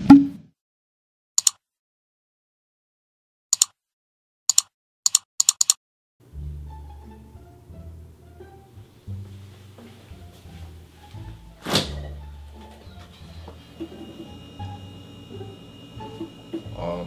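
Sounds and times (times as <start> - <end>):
computer mouse double clicks: 1.4 - 1.6, 3.6 - 3.8, 4.5 - 5.8
music with low bass line: 6.3 - 17.0.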